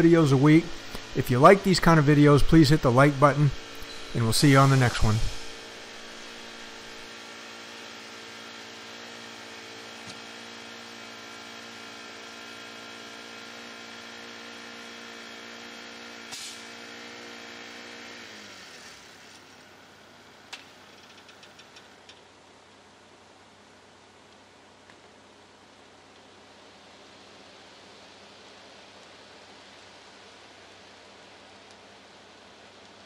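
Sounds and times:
small gas engine idling: 0:00.0 - 0:22.3.

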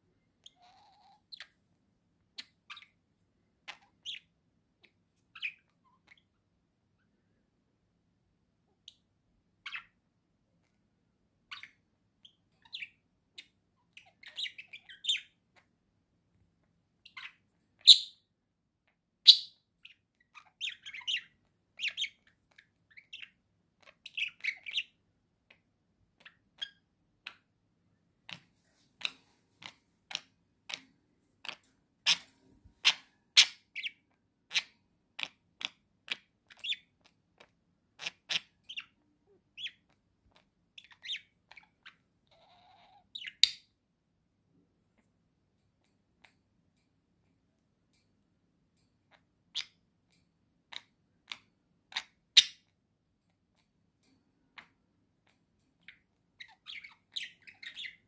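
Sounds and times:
budgerigars chirping: 0:03.6 - 0:06.3, 0:11.5 - 0:15.4, 0:17.0 - 0:18.2, 0:19.2 - 0:25.0, 0:29.0 - 0:37.1, 0:38.0 - 0:43.7, 0:55.8 - 0:58.0.

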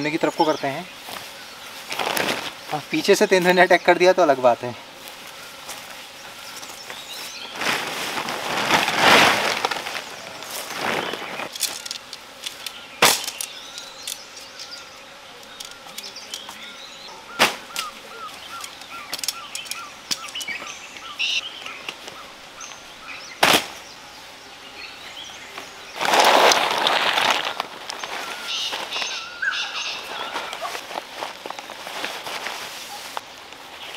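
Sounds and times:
loud rustle: 0:01.0 - 0:03.6, 0:04.9 - 0:14.2, 0:17.3 - 0:20.7, 0:23.3 - 0:23.9, 0:25.5 - 0:33.9
bird chirping: 0:12.6 - 0:26.0, 0:27.5 - 0:30.6.

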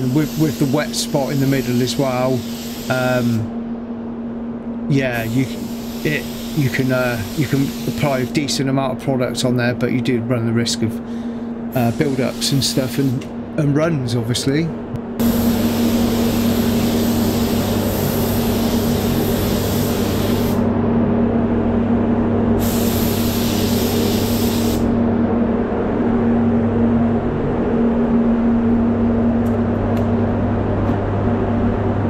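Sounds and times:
spray gun compressed-air hiss: 0:00.0 - 0:03.5, 0:05.0 - 0:08.4, 0:11.8 - 0:13.2, 0:15.2 - 0:20.7, 0:22.6 - 0:25.0
low mechanical hum: 0:00.0 - 0:32.0.

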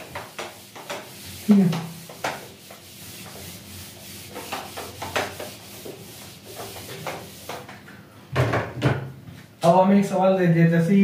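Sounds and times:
eraser wiping whiteboard: 0:00.0 - 0:07.8.

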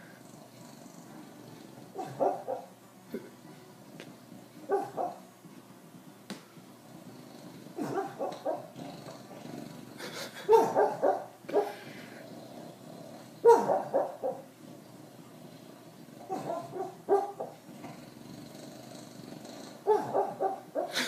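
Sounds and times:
sleeping dog muffled woofs: 0:00.4 - 0:02.7, 0:04.6 - 0:05.2, 0:07.0 - 0:21.0.

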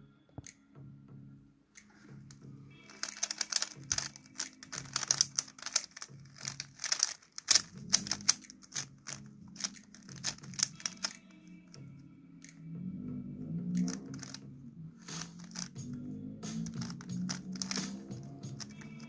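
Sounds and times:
background music with pulsing beat: 0:01.8 - 0:19.0
plastic puzzle cube clicking: 0:02.9 - 0:11.4, 0:13.8 - 0:14.4, 0:15.1 - 0:19.0.

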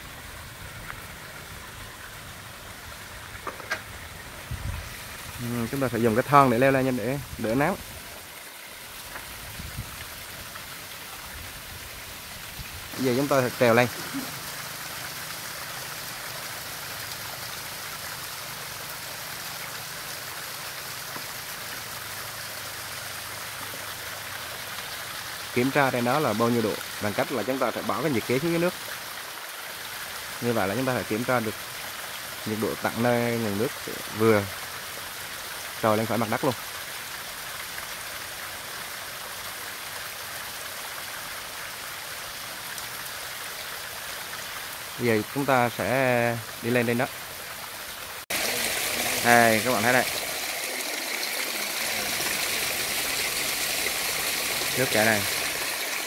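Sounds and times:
water running down rock: 0:00.0 - 0:56.0
water splashing down rock: 0:48.3 - 0:56.0.

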